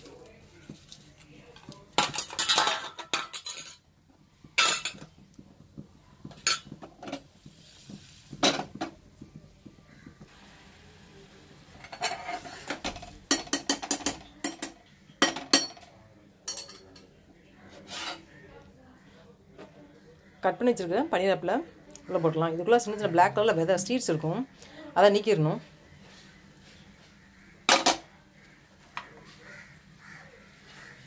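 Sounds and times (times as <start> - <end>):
steel utensils clinking on pans: 1.5 - 3.8, 4.6 - 5.1, 6.3 - 7.3, 11.8 - 17.1.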